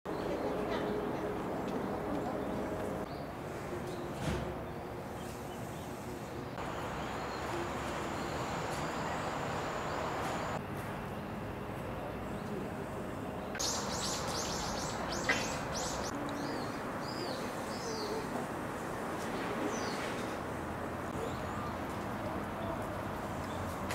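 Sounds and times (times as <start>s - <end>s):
outdoor background hiss: 2.5s - 23.9s
bird chirping: 13.6s - 18.2s.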